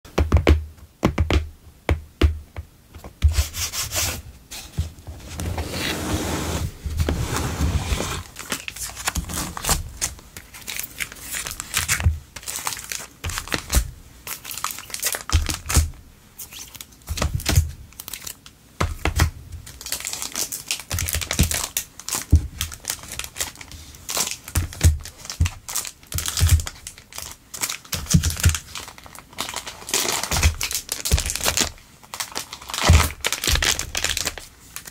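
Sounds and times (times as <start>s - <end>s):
cellophane crinkling: 6.9s - 18.5s, 19.6s - 34.9s.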